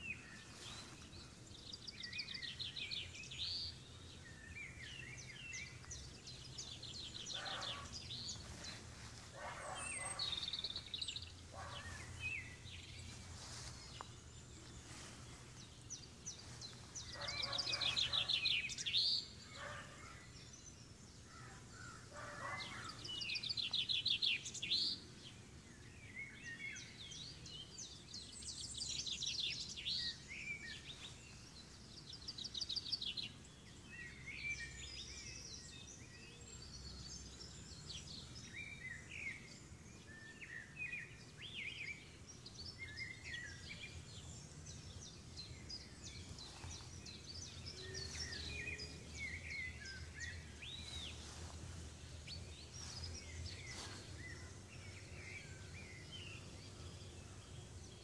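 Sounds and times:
songbirds trilling and chirping: 0.0 - 58.0.

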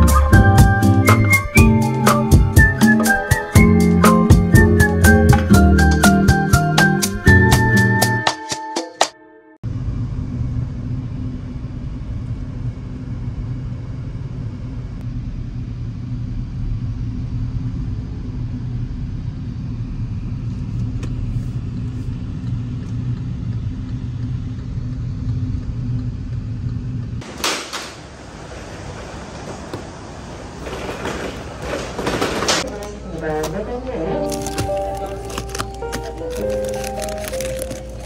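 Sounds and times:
car engine and road rumble: 9.6 - 32.8.

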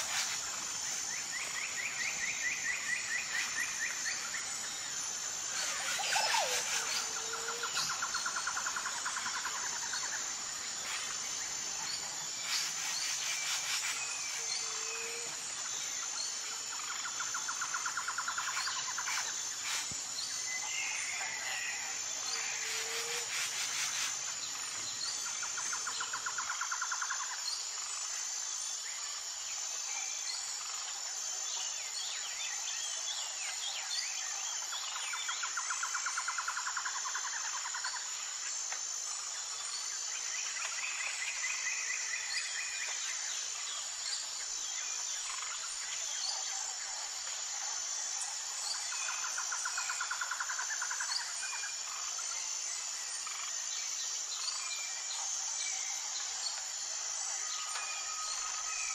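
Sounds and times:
high insect drone: 0.0 - 58.9
rapid pulsing insect trill: 0.0 - 58.9.

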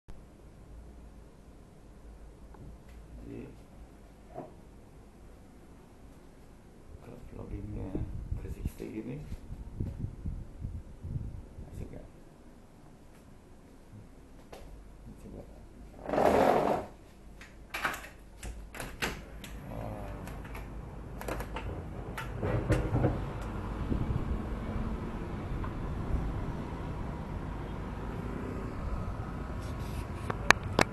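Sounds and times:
distant traffic hum: 19.3 - 30.9.

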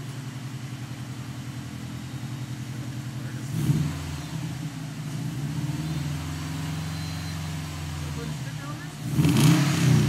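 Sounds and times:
car engine idling: 0.0 - 10.0
engine revving blip: 5.4 - 10.0.

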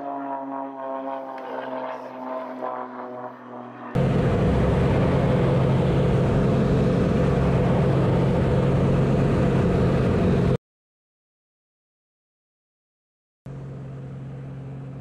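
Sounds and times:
propeller plane engine droning: 0.0 - 10.6, 13.5 - 15.0
rushing wind: 3.9 - 10.6.

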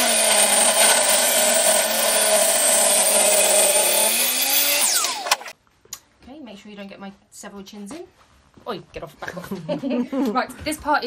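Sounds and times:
table saw ripping wood: 0.0 - 5.5.

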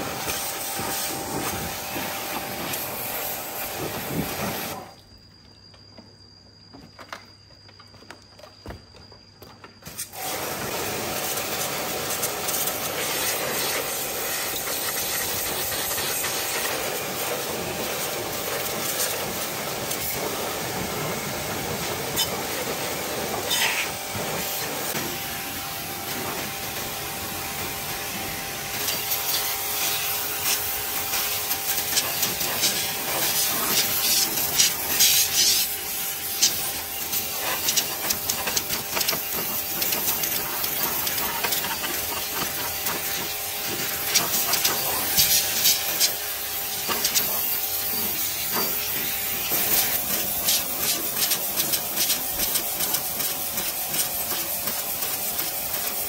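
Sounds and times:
pressure washer jet hissing: 0.0 - 4.9, 9.9 - 56.0.

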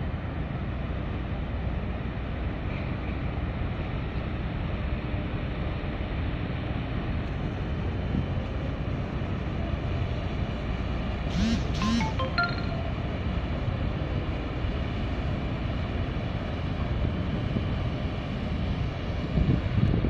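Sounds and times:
music with rising tones: 11.8 - 12.9
wind noise on microphone: 16.8 - 20.0.

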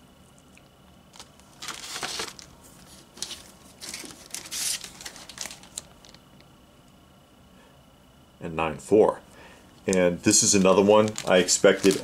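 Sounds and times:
plastic bagging rustling: 1.1 - 6.2, 9.9 - 12.0
cardboard box rustling: 1.6 - 5.8, 11.1 - 12.0.

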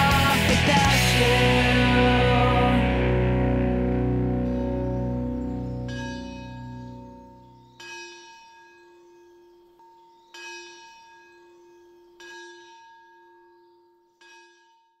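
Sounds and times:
slow bell-like chimes: 4.3 - 15.0.

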